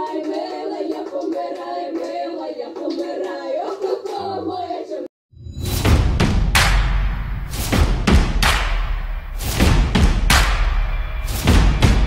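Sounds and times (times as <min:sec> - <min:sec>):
hand clapping: 0:00.0 - 0:04.2, 0:08.4 - 0:08.9, 0:10.3 - 0:10.8
women singing in harmony: 0:00.0 - 0:05.1.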